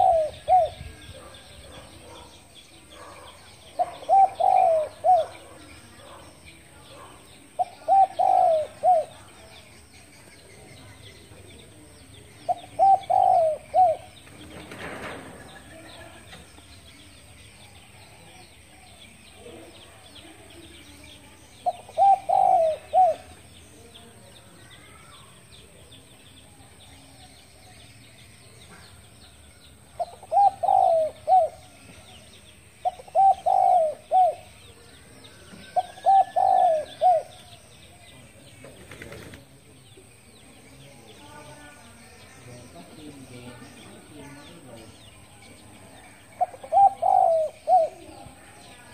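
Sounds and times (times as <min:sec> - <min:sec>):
dove cooing: 0:00.0 - 0:06.3, 0:06.9 - 0:09.5, 0:12.4 - 0:14.2, 0:21.6 - 0:23.4, 0:30.0 - 0:31.8, 0:32.8 - 0:34.6, 0:35.7 - 0:37.6, 0:46.3 - 0:48.1
small birds chirping: 0:00.0 - 0:48.9.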